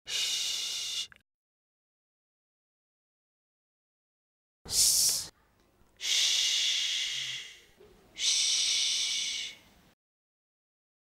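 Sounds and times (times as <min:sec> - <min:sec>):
child making a shh sound: 0:04.7 - 0:05.4, 0:06.0 - 0:09.7.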